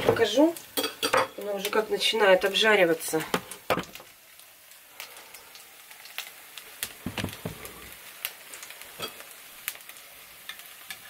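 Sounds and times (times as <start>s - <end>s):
oil crackling and popping: 0.0s - 11.0s
pancakes sizzling in oil: 0.0s - 11.0s
soft knocks: 7.0s - 7.9s.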